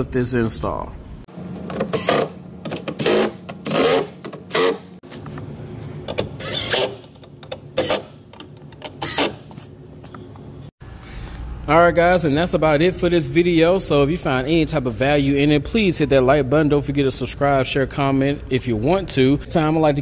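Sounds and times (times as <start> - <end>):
cordless drill driving screws: 6.4 - 7.0.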